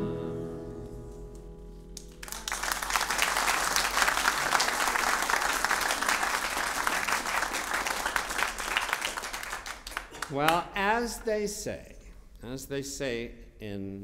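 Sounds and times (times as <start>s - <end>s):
classical guitar chord: 0.0s - 2.2s
audience applause: 2.0s - 10.4s.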